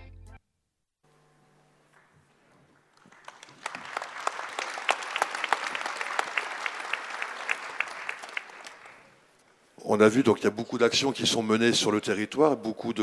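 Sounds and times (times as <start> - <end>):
audience applauding: 2.8 - 9.2.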